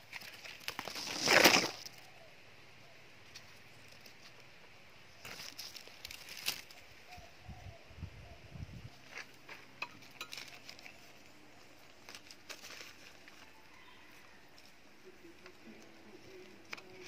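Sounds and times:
cloth and plastic rustling: 0:10.2 - 0:13.6.

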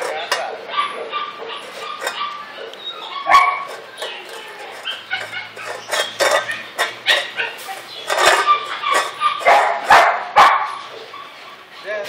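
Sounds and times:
kibble clinking in metal bowl: 0:00.0 - 0:00.5, 0:01.6 - 0:02.2, 0:03.5 - 0:09.7
puppies eating: 0:00.0 - 0:11.8.

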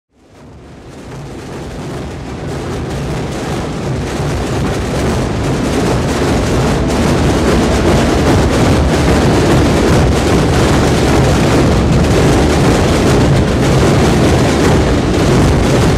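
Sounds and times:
massed drums rolling: 0:00.2 - 0:15.9.

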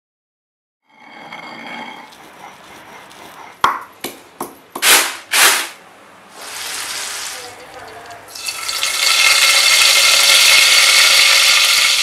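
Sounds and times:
pestle crunching grinds: 0:02.0 - 0:05.7
pestle knocking in stone mortar: 0:03.2 - 0:05.0.

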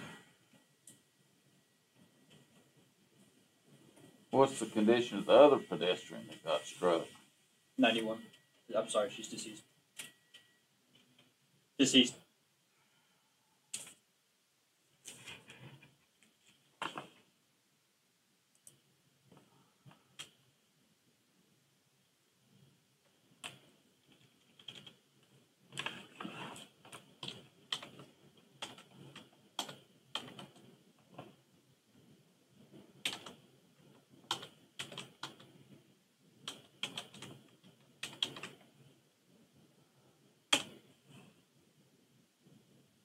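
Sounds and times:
typing on computer keyboard: 0:23.4 - 0:25.0, 0:25.7 - 0:31.4, 0:32.9 - 0:35.6, 0:36.4 - 0:38.7, 0:40.5 - 0:40.8.

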